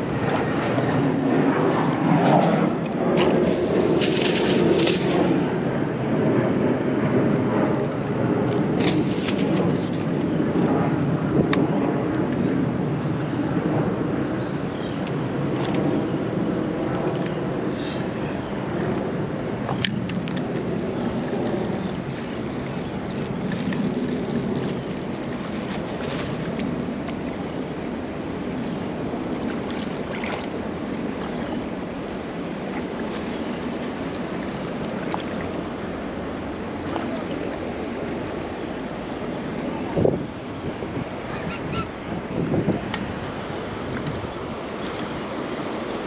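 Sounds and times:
wind noise on microphone: 0.0 - 46.0
river water rushing: 17.7 - 40.1.

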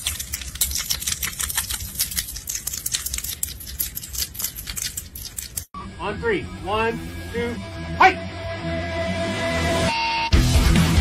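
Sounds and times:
hedgehog clicking and smacking: 0.0 - 5.7.

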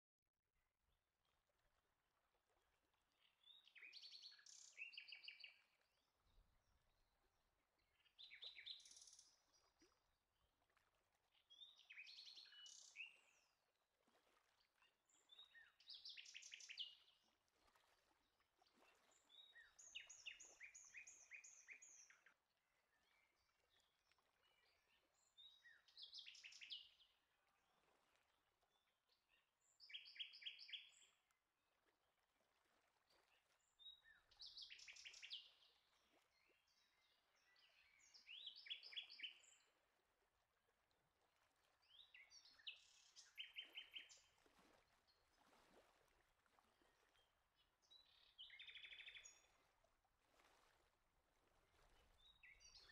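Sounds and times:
songbird singing: 3.2 - 5.8, 7.8 - 9.4, 11.5 - 13.5, 15.2 - 17.0, 19.3 - 22.3, 24.7 - 27.0, 29.8 - 31.1, 33.8 - 35.7, 36.4 - 39.7, 41.9 - 44.3, 47.9 - 49.5, 52.2 - 52.9.

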